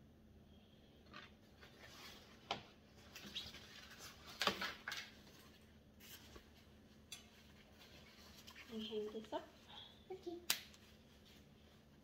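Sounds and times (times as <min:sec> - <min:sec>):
faint rustling: 0:05.2 - 0:12.0.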